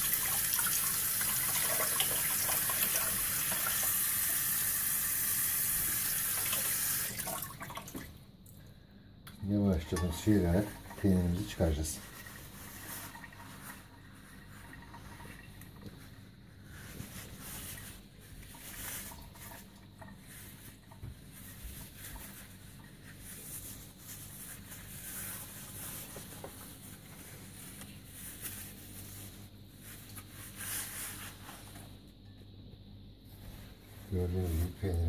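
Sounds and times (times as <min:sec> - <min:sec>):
cloth rustling and crinkling: 0:10.0 - 0:32.1.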